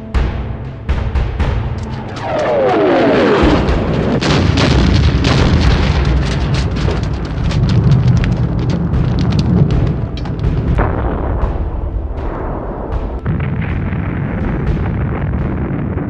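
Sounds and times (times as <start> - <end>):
deep rumble: 0.0 - 16.0
explosions: 1.3 - 16.0
sharp cracks: 1.4 - 16.0
falling whistle: 1.9 - 3.7.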